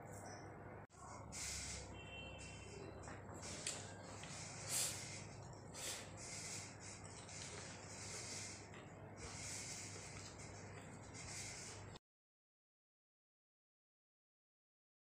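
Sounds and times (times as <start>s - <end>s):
breaths through the nose: 1.1s - 1.9s, 4.2s - 10.4s.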